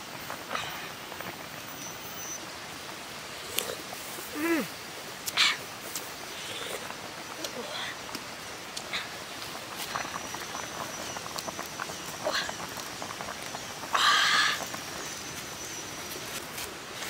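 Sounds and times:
faint high whine: 0.0s - 4.8s
wood fire crackling and popping: 2.5s - 17.0s.

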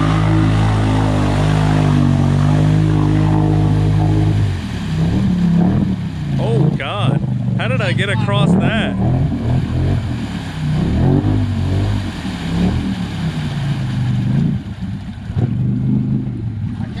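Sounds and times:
atv engine revving: 0.0s - 14.6s.

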